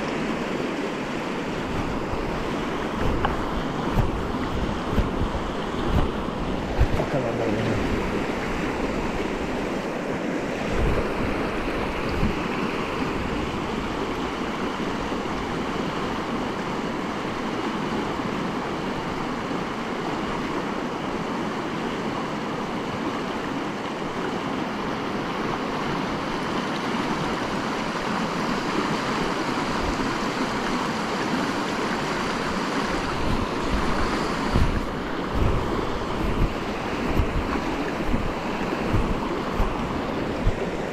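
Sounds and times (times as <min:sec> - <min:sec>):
wind buffeting microphone: 0:00.0 - 0:17.1, 0:32.1 - 0:40.9
river rushing over rocks: 0:00.0 - 0:40.9.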